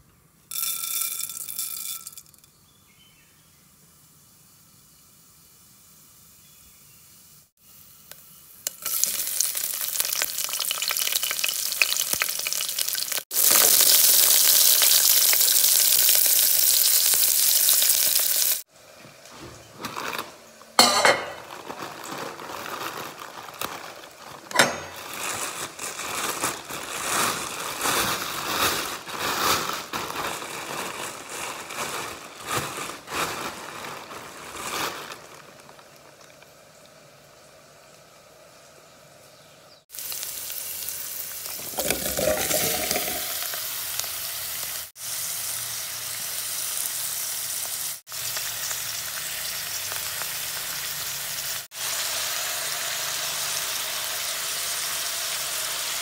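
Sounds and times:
mustard seeds sizzling in oil: 0.5s - 19.2s, 34.2s - 56.0s
plastic bag rustling: 19.3s - 36.2s, 41.4s - 43.7s
pot lid clinking: 20.8s - 21.5s, 24.5s - 25.1s, 41.7s - 43.4s.

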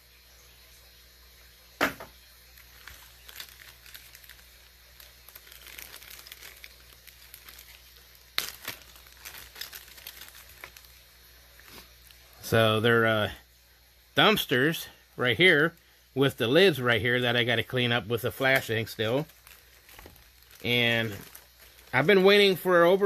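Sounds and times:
packaging crinkling and rustling: 2.5s - 12.2s, 17.2s - 23.0s.

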